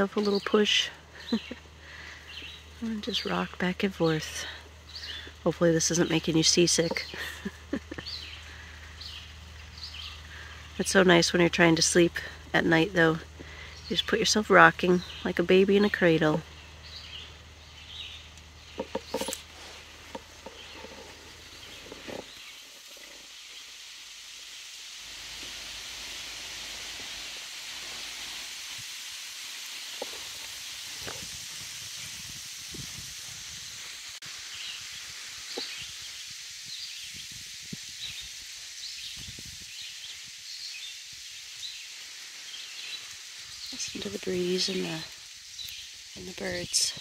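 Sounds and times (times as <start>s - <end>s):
birds chirping: 0.0s - 23.8s, 34.5s - 37.4s, 38.0s - 47.0s
breeze rustling leaves: 0.0s - 47.0s.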